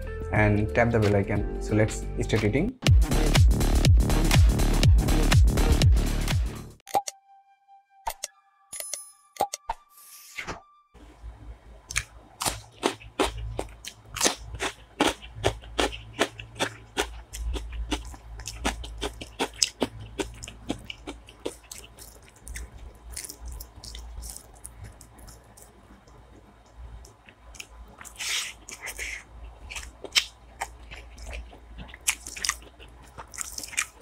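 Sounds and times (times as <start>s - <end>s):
crunching cucumber being chewed: 11.9s - 34.0s.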